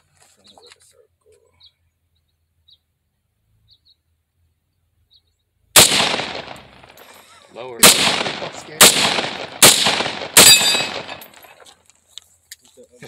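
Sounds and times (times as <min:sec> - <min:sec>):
rifle shot with echo: 0:05.8 - 0:07.2, 0:07.8 - 0:11.5.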